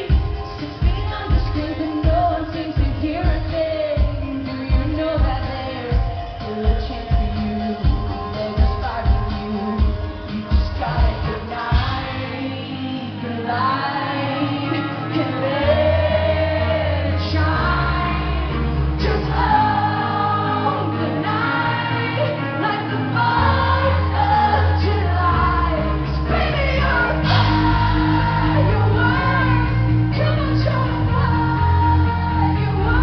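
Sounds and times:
pop band playing: 0.0 - 33.0
woman singing into a microphone: 0.0 - 33.0
bass notes: 14.4 - 33.0.

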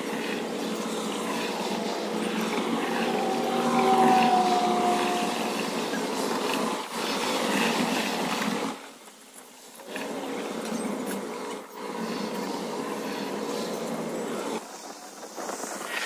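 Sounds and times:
leaf blower running: 0.0 - 8.4.

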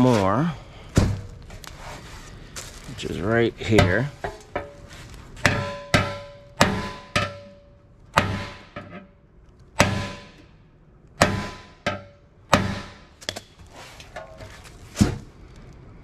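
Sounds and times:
hammer striking steel panel: 5.4 - 9.2, 9.8 - 10.6, 11.2 - 13.2.

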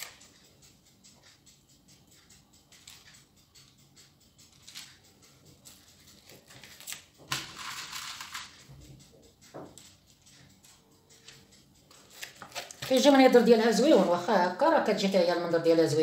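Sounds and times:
spoon clicking and scraping: 2.2 - 13.6
parchment paper rustling: 5.6 - 8.6, 10.6 - 14.2.

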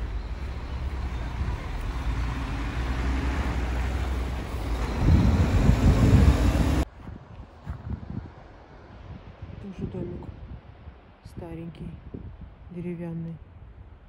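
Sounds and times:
vehicle engine running: 0.0 - 6.8
low rumble: 0.0 - 10.9.

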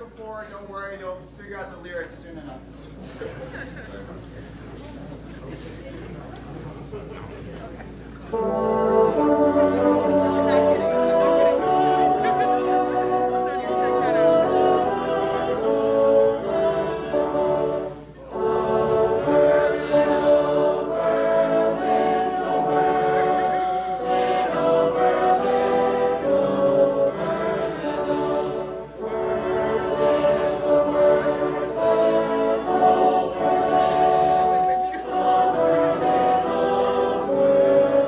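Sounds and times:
bassoon ensemble playing: 8.2 - 38.0.

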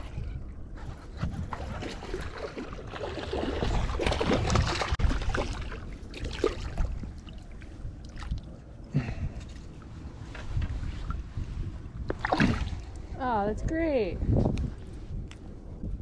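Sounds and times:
wind rumbling on microphone: 0.0 - 16.0
fish thrashing in water: 1.4 - 8.5, 12.1 - 12.9.

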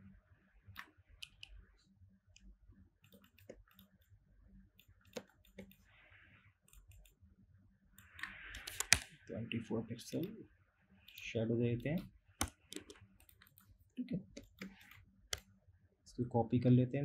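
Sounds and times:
computer mouse clicks: 0.7 - 1.6, 2.4 - 4.1, 4.8 - 5.9, 6.7 - 7.2, 8.0 - 9.2, 11.1 - 13.7, 14.3 - 15.5.

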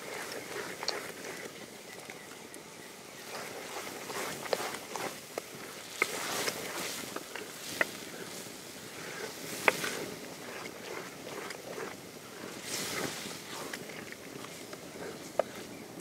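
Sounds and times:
thick sauce wet churning: 9.0 - 15.6.

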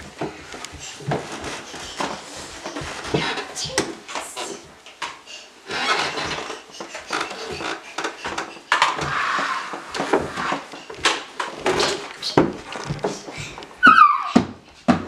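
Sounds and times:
rustling: 0.0 - 4.9
footsteps on wooden stairs: 0.0 - 15.0.

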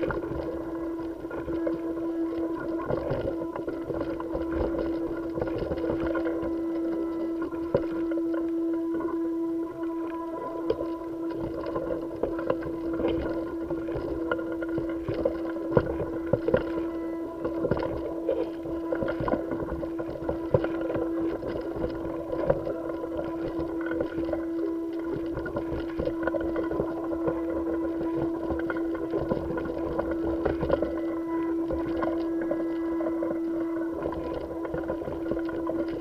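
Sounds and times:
constant mid-pitched tone: 0.0 - 36.0
steady machine hum: 0.0 - 36.0.

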